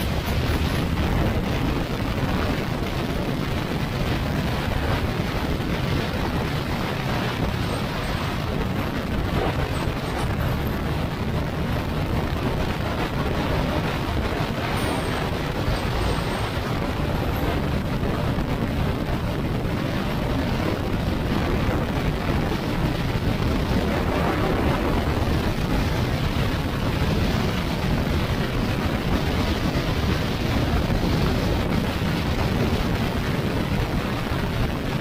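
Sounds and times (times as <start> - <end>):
scooter engine running: 0.0 - 34.0
road noise: 0.0 - 35.0
wind on microphone: 0.0 - 35.0.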